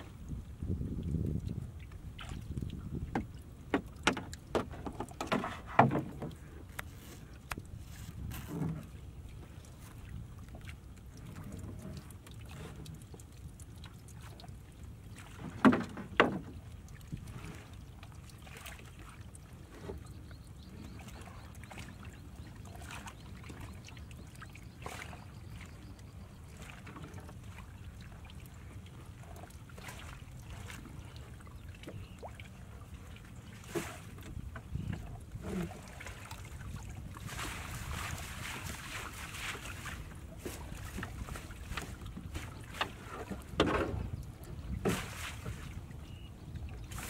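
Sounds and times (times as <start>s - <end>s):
water splashing and dripping: 0.9s - 19.9s, 26.6s - 32.5s, 33.5s - 45.8s
wet net hauled over boat: 2.1s - 9.0s, 15.1s - 20.0s, 33.5s - 45.8s
small knocks: 3.1s - 6.9s.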